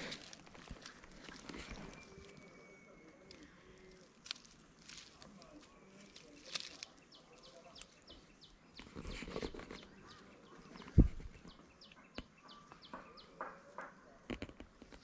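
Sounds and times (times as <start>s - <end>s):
rustling: 0.0s - 11.6s
small birds chirping: 0.0s - 15.0s.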